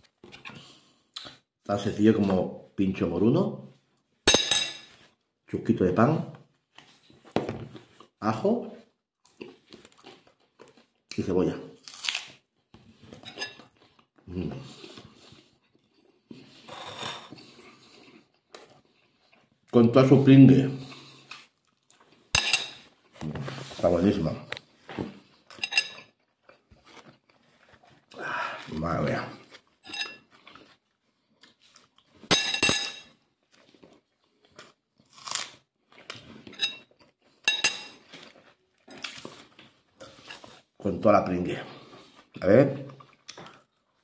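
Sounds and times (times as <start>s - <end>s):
man chewing: 0.0s - 1.5s, 9.2s - 11.1s, 11.8s - 19.7s, 20.8s - 23.2s, 24.7s - 32.3s, 33.2s - 40.8s, 41.7s - 44.0s
fork scraping plate: 29.8s - 30.3s, 40.1s - 40.6s
cutlery clinks: 32.3s - 33.1s, 37.5s - 38.0s.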